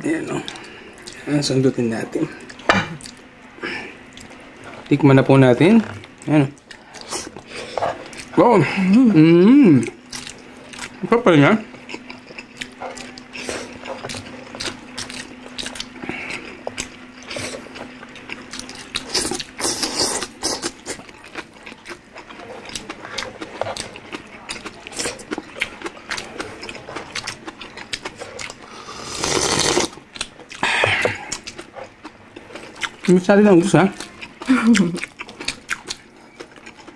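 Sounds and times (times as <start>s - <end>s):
wet chewing and lip smacks: 9.8s - 11.0s, 11.7s - 28.6s, 30.1s - 33.2s
loud slurp of broth: 28.8s - 29.9s.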